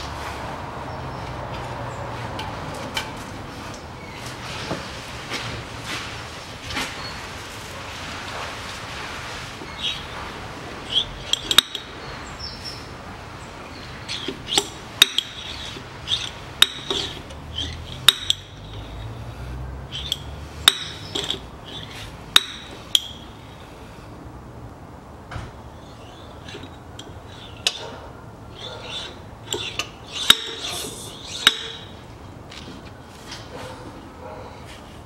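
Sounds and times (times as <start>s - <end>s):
hand oil pump squeaking: 9.6s - 10.2s, 10.8s - 12.8s, 13.7s - 23.6s, 25.8s - 32.8s
pump clicking: 14.1s - 18.9s.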